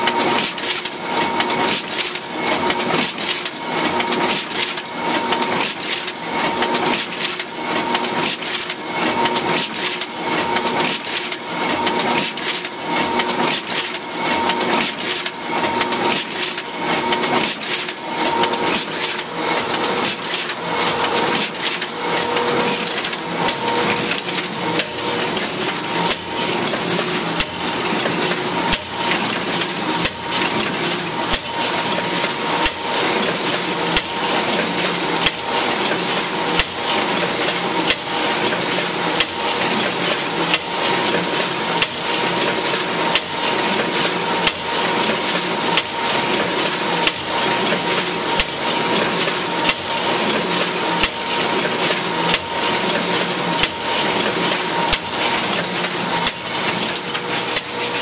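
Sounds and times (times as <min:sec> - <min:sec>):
paper collator clattering: 0:00.0 - 0:58.0.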